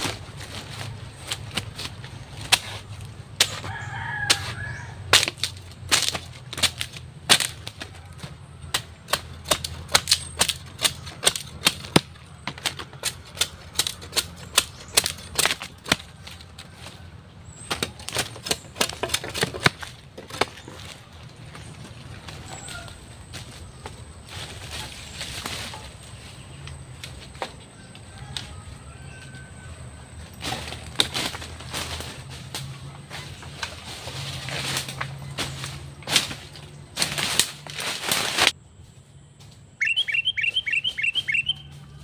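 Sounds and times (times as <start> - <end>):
machete chopping bamboo: 0.0 - 21.0, 30.4 - 38.6.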